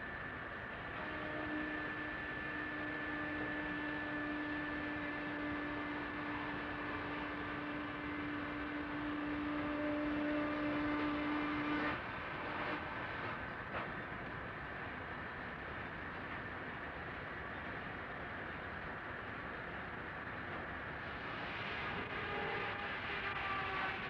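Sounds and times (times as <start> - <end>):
mill machinery running: 0.1 - 16.6.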